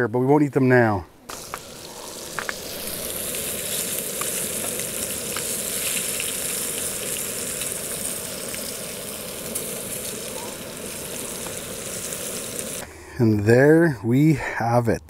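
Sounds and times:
fish sizzling in frying pan: 1.3 - 12.8.

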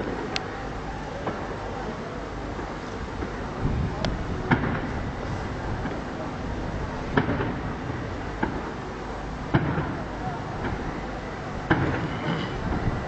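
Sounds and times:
steady background noise: 0.0 - 13.0
fireworks bursting: 4.5 - 6.2, 7.1 - 8.8, 9.5 - 10.9, 11.6 - 13.0.

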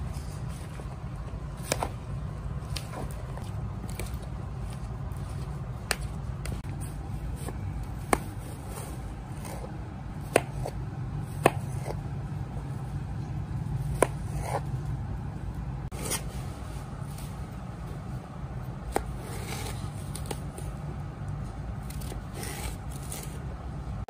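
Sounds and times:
steady low hum: 0.0 - 24.0
knife slicing watermelon: 1.6 - 2.0, 7.3 - 12.0, 13.9 - 14.7, 21.8 - 23.4.

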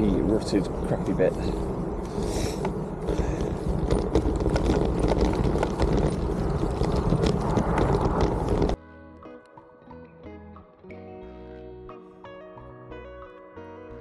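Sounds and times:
bike rattling: 0.0 - 8.8
low rush of wind noise: 0.0 - 8.8
tyres crunching on gravel: 0.0 - 8.8.

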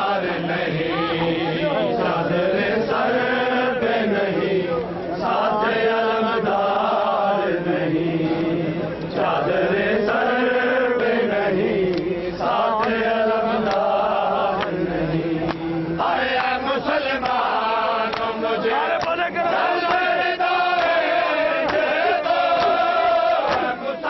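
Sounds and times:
men chanting in unison: 0.0 - 24.0
hand slaps: 18.1 - 18.3, 19.8 - 20.1, 21.6 - 21.9, 22.6 - 22.8.

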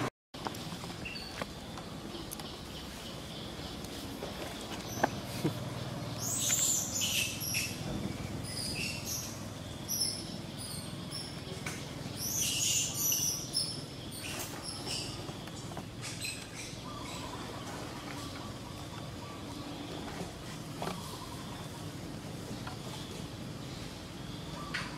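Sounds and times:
high-pitched chirping calls: 6.1 - 15.2.

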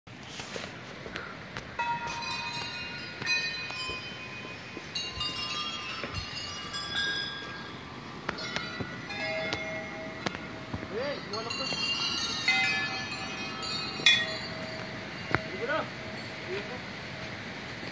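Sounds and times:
small brass bells ringing: 1.8 - 17.6.

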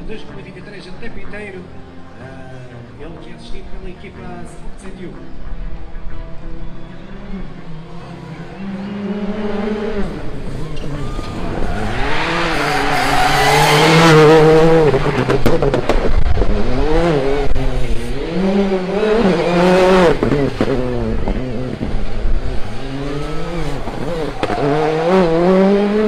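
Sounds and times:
car engine revving hard: 7.4 - 26.0.

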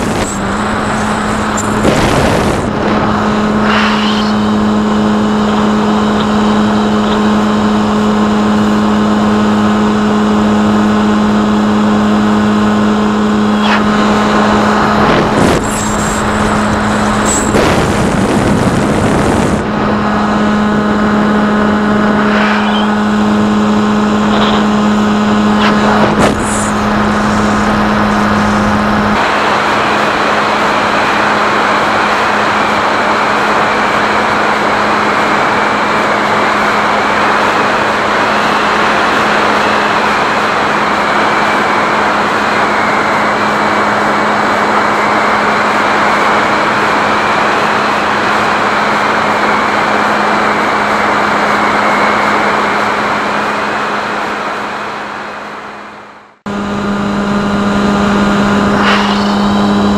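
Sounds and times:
wind rushing: 0.0 - 7.0, 13.3 - 24.2, 24.8 - 32.7
electric motor and propeller droning: 0.0 - 59.9.

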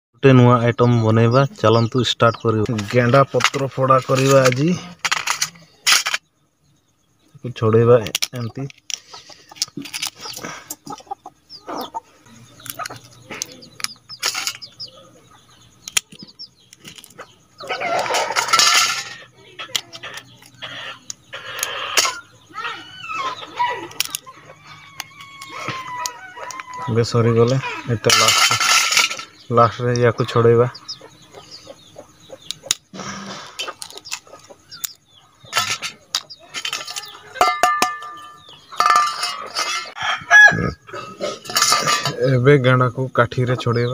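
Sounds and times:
small birds chirping: 0.2 - 43.9
snail shells clicking and cracking: 8.0 - 11.2, 12.5 - 14.9, 15.6 - 17.3, 19.6 - 22.2, 23.8 - 26.9, 30.8 - 32.9, 33.6 - 37.2
snail shells cracking: 15.8 - 17.2, 23.8 - 24.3, 24.9 - 26.8, 32.3 - 32.9, 33.6 - 37.2
clink of a steel bowl: 37.4 - 39.3.

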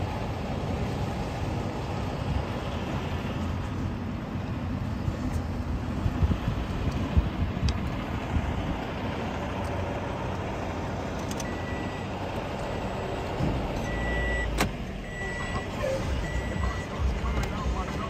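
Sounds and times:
engines rumbling: 0.0 - 18.0
high beep: 11.4 - 12.1, 12.8 - 18.0.

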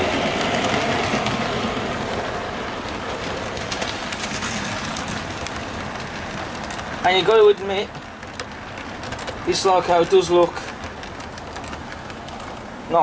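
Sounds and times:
model train rolling: 0.0 - 13.0.

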